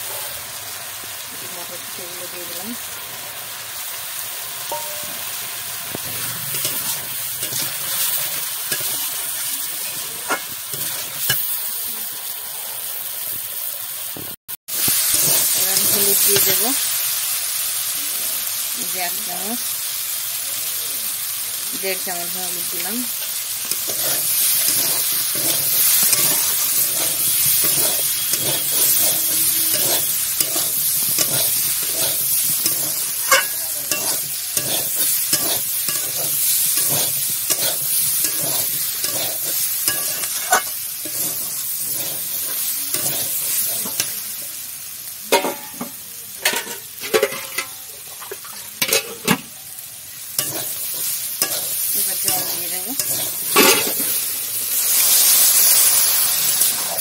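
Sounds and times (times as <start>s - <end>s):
vegetables sizzling in oil: 0.0s - 57.0s
spatula scraping a pan: 6.0s - 11.5s, 22.6s - 44.2s, 50.4s - 57.0s.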